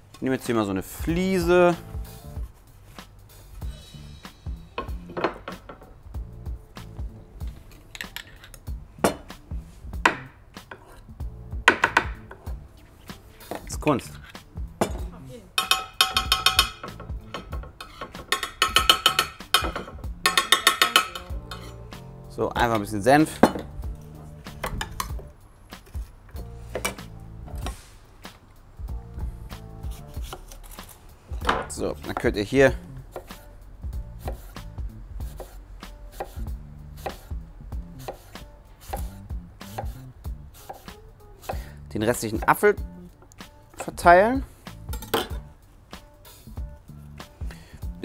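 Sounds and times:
background music: 0:00.0 - 0:48.0
knife slicing apple on board: 0:10.0 - 0:11.0, 0:29.8 - 0:31.5, 0:34.2 - 0:34.6, 0:35.3 - 0:37.4, 0:38.0 - 0:41.7
metal spoon clinking on a bowl: 0:15.6 - 0:21.8, 0:44.9 - 0:45.4.

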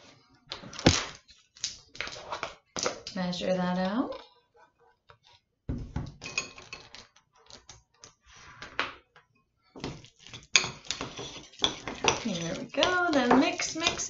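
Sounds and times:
utensil scraping a glass bowl: 0:10.1 - 0:14.0.

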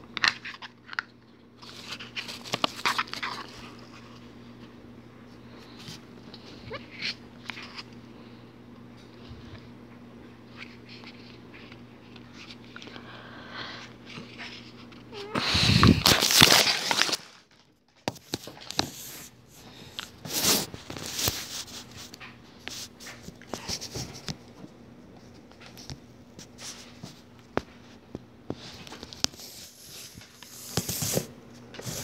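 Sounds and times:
rustling and scraping: 0:18.1 - 0:24.4, 0:25.2 - 0:32.0.

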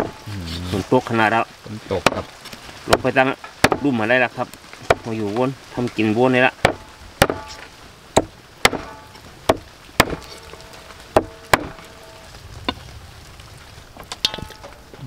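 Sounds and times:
cleaver chopping on wooden block: 0:02.9 - 0:03.9, 0:06.6 - 0:10.4, 0:11.1 - 0:11.9.

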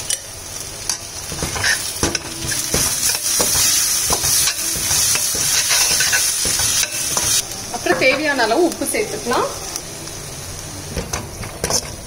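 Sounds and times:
vegetables sizzling in a pan: 0:00.0 - 0:12.0
spatula scraping and clinking on pan: 0:00.9 - 0:08.3.

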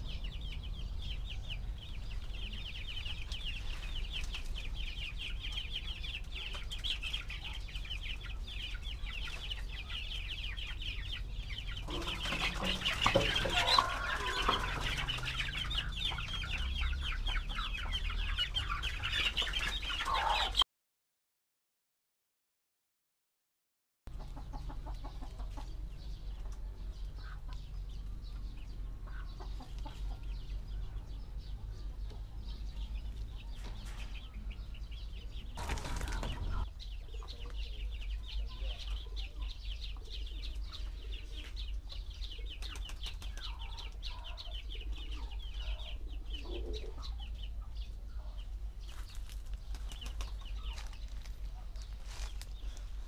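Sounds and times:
chickens clucking: 0:00.0 - 0:20.6, 0:24.1 - 0:53.0
wings flapping: 0:11.8 - 0:16.6, 0:35.6 - 0:36.6, 0:42.6 - 0:43.6, 0:48.9 - 0:51.4.

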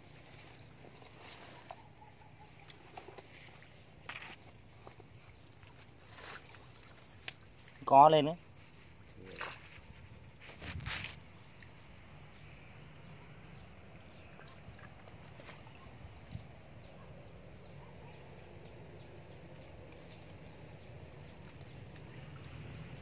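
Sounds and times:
bird chirping: 0:08.6 - 0:10.4, 0:11.0 - 0:23.0.

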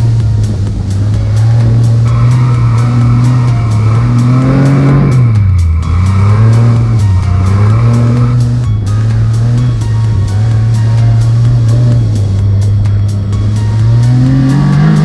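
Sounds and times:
dune buggy engine revving: 0:00.0 - 0:15.0.

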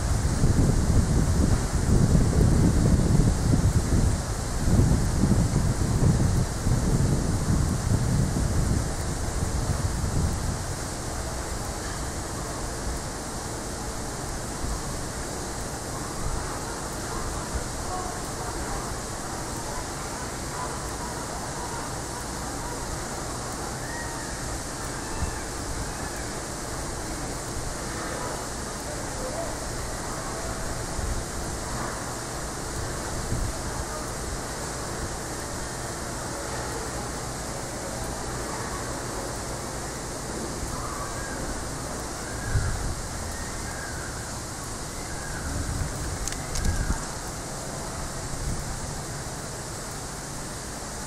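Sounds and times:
wind rumble on microphone: 0:00.0 - 0:18.8, 0:25.1 - 0:36.2, 0:40.1 - 0:50.0
even hiss: 0:00.0 - 0:51.0
outdoor background noise: 0:00.0 - 0:51.0.

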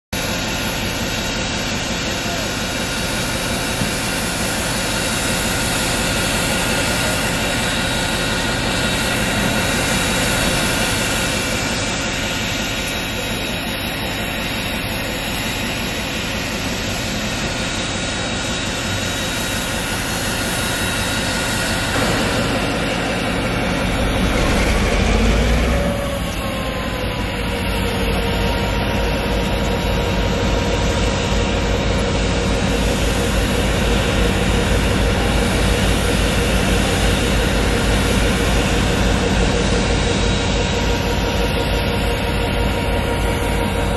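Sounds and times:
deep rumble: 0:21.9 - 0:30.7.

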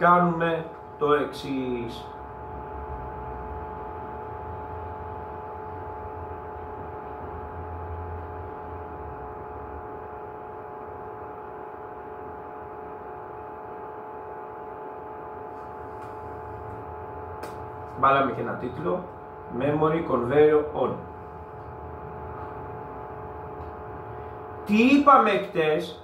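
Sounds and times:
machine drone with whining tones: 0:00.0 - 0:26.0.

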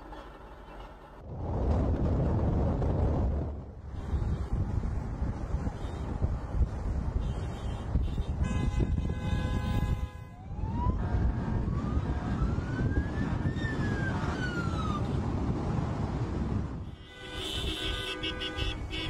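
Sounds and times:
car wind and road noise: 0:00.0 - 0:19.0
siren wailing: 0:10.4 - 0:15.2.

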